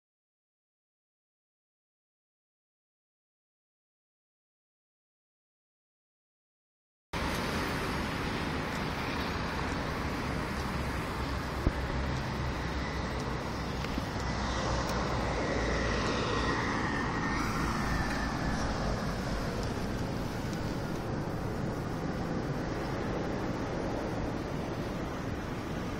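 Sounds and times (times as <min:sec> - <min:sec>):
faint whine: 0:07.2 - 0:25.9
road traffic rumble: 0:07.2 - 0:25.9.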